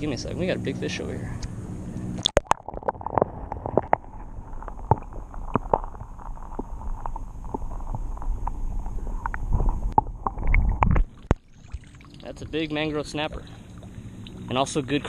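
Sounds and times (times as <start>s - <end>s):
muffled underwater rumble: 0.0s - 15.0s
sharp clicks and pops: 1.4s - 11.6s.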